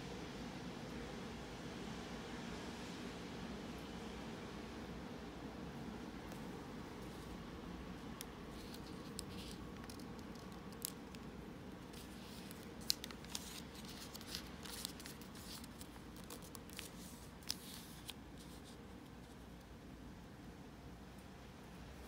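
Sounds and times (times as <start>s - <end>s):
low room hum: 0.0s - 22.0s
paper being folded and creased: 8.5s - 19.4s.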